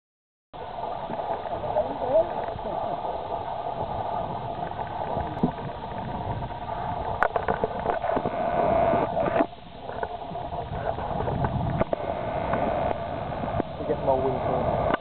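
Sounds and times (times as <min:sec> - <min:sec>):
river water: 0:00.6 - 0:15.0
wind: 0:00.6 - 0:15.0.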